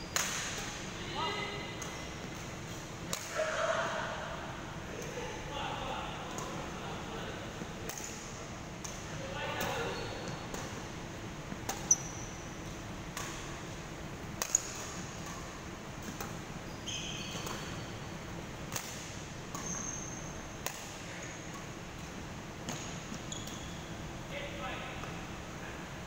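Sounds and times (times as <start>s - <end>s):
rackets striking shuttlecock: 0.1s - 0.9s, 1.8s - 3.6s, 7.7s - 13.7s, 14.4s - 16.5s, 17.3s - 17.8s, 18.7s - 19.8s, 20.6s - 23.3s.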